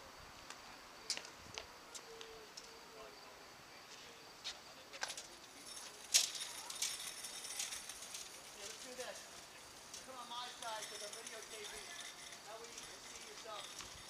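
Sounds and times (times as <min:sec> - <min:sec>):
balls rattling in wire cart: 0:05.0 - 0:14.0.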